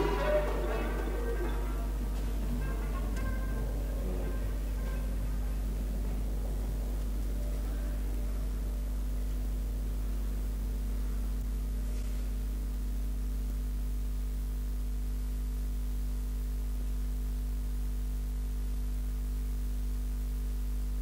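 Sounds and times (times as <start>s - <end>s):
mains hum: 0.0s - 21.0s
radio broadcast hiss: 0.0s - 21.0s.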